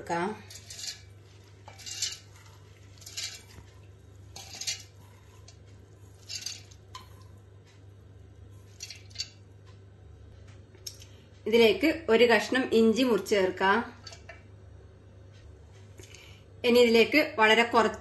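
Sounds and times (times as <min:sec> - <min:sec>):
wet lentils sliding against metal: 0:00.4 - 0:06.8.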